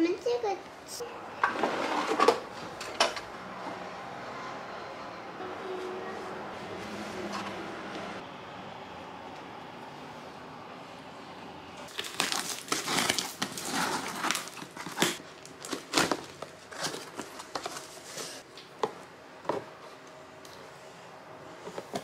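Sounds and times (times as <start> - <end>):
cardboard rustling and scraping: 11.9 - 18.4.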